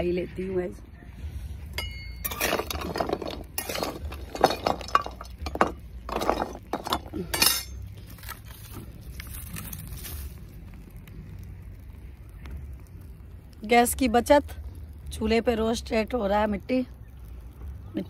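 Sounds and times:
metal spatula scraping iron pan: 1.8s - 7.8s.

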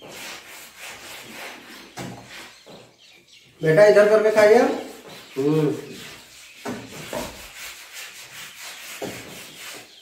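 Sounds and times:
fingers scraping a plate: 4.4s - 10.0s.

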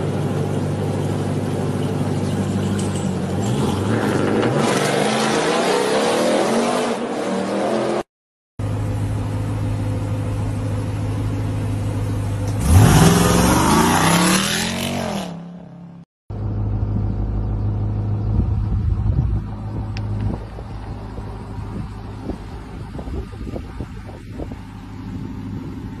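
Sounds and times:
engine low rumble: 0.0s - 4.6s, 8.6s - 14.3s, 15.6s - 26.0s
truck engine accelerating hard: 0.0s - 8.1s, 12.5s - 15.4s.

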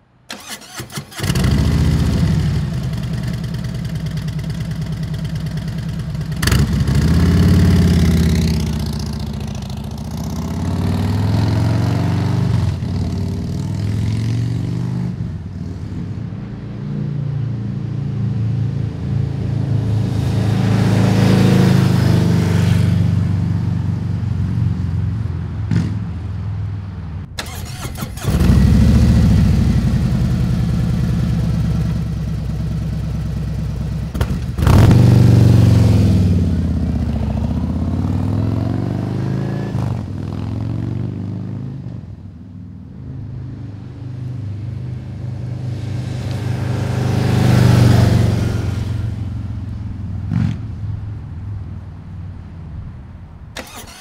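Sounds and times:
motorcycle engine passing by: 0.4s - 15.9s, 27.4s - 42.1s, 44.1s - 49.7s.

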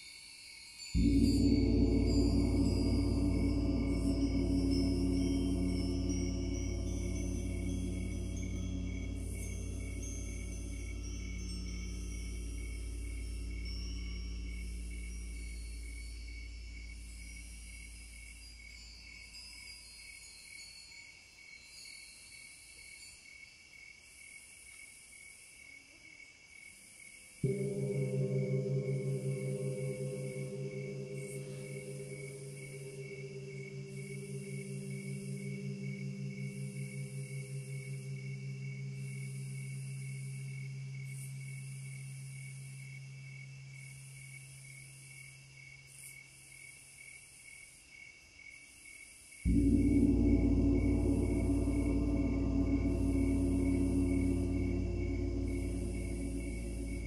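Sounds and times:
low steady hum: 1.0s - 19.2s, 27.4s - 44.9s, 49.5s - 57.0s
high-pitched insect-like chirring: 1.0s - 20.8s, 27.4s - 45.1s, 49.5s - 57.0s.

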